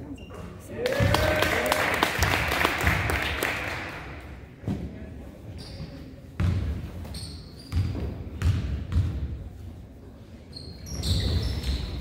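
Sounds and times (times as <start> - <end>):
sneakers squeaking on court: 0.1 - 0.6, 5.5 - 9.3, 10.4 - 12.0
basketball bouncing on floor: 6.4 - 6.9, 7.7 - 9.3.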